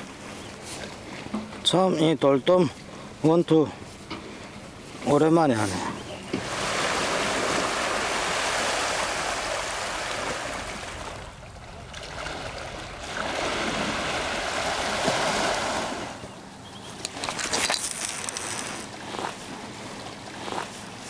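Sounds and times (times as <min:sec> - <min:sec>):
sea water washing against rocks: 0:06.4 - 0:16.3.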